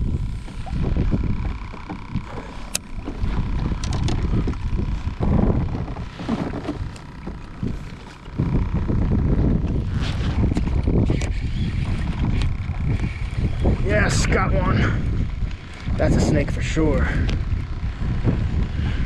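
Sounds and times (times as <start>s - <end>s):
gusty wind on microphone: 0.0s - 19.0s.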